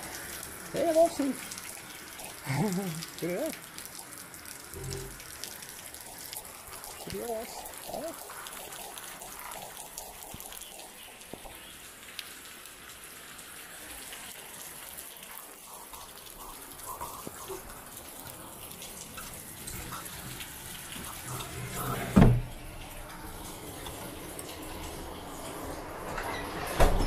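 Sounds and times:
water dripping on concrete: 0.0 - 21.6
rain hissing: 0.0 - 27.0.

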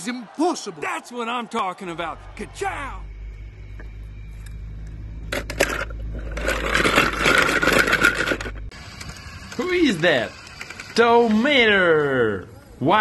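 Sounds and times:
low steady hum: 2.0 - 9.6
toy cars rattling in a colander: 5.4 - 8.6, 9.6 - 11.4.

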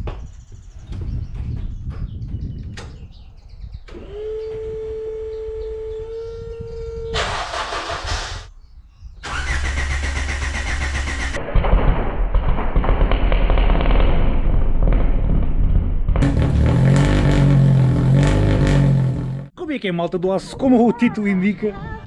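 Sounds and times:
car starter whine: 3.9 - 8.5, 9.2 - 11.4
engine idling fast: 9.3 - 11.4.

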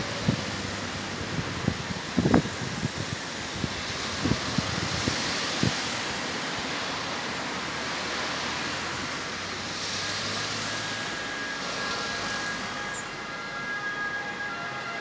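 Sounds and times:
train wheels rushing on rail: 0.0 - 14.5
thin high squeal: 10.6 - 13.2.

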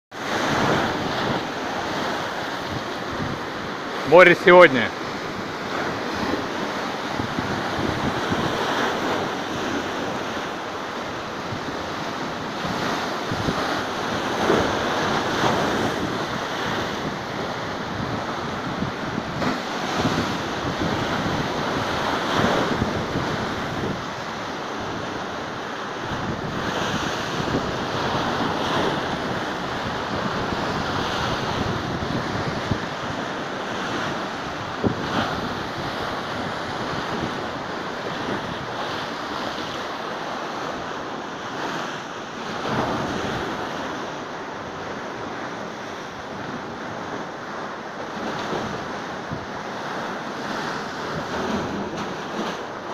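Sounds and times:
waves breaking: 0.1 - 52.9
wind buffeting microphone: 0.3 - 3.8, 5.0 - 10.6, 11.4 - 25.4, 26.0 - 39.8.

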